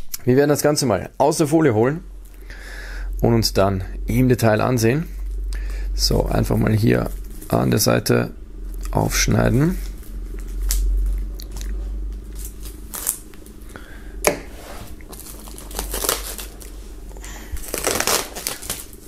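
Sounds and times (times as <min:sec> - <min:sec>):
plastic film crinkling: 0:06.6 - 0:08.0, 0:09.6 - 0:13.7, 0:15.0 - 0:19.0
sharp plastic crackle: 0:09.7 - 0:13.8, 0:15.0 - 0:19.0.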